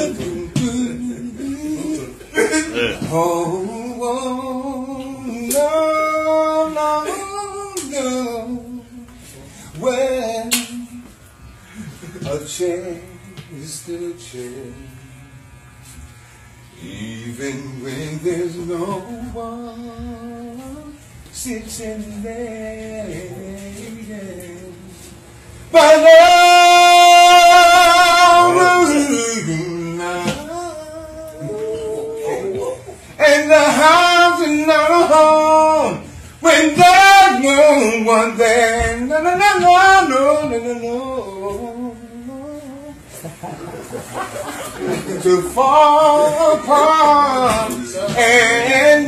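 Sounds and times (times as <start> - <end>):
man singing unaccompanied: 0.0 - 11.2, 12.0 - 15.5, 16.7 - 25.1, 25.7 - 43.2, 44.4 - 49.0.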